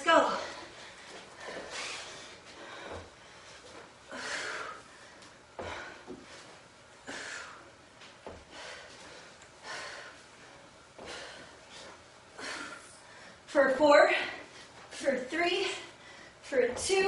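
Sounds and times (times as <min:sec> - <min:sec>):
woman breathing hard: 0:00.2 - 0:13.5, 0:15.6 - 0:16.5
soft low thumps: 0:16.5 - 0:17.0.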